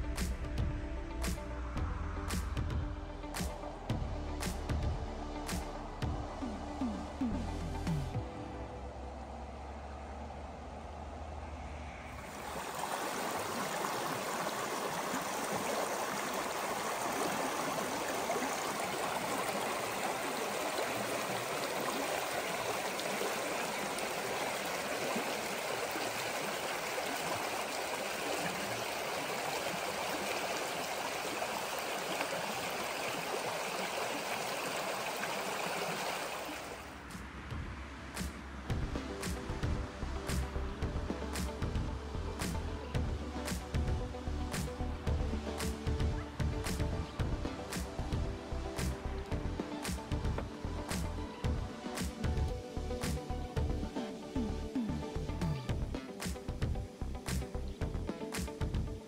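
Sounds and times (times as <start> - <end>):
stream rushing over stones: 9.8 - 54.4.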